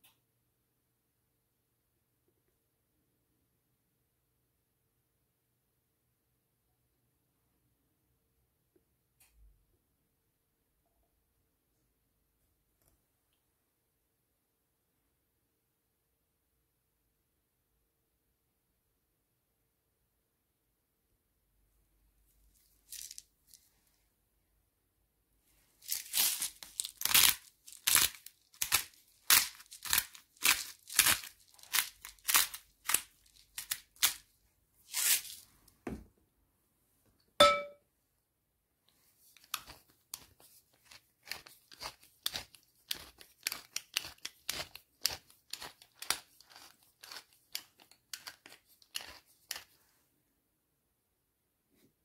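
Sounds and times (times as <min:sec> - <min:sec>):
pepper grinder grinding: 0:25.9 - 0:34.3, 0:39.4 - 0:49.8
short ringing clink: 0:37.4 - 0:37.8.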